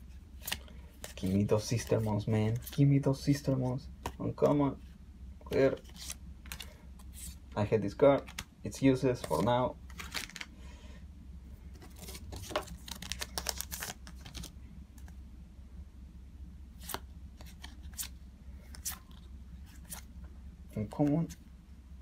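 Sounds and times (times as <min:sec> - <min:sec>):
low steady hum: 0:00.0 - 0:22.0
paper cards clicking and rustling: 0:05.5 - 0:07.2, 0:08.1 - 0:08.5, 0:09.2 - 0:10.5, 0:11.8 - 0:14.5.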